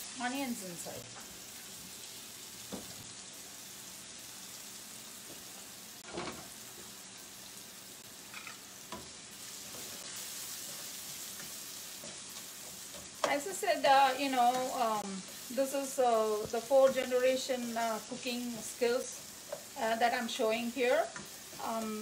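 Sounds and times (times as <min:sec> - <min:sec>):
onions sizzling in oil: 0:00.0 - 0:22.0.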